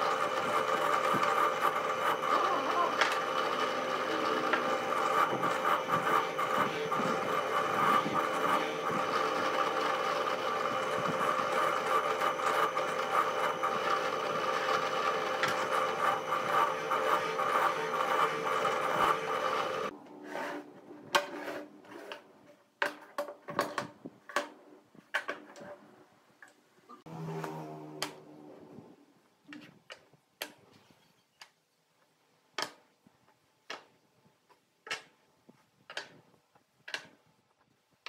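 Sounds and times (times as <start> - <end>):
drill press motor running: 0.0 - 19.9.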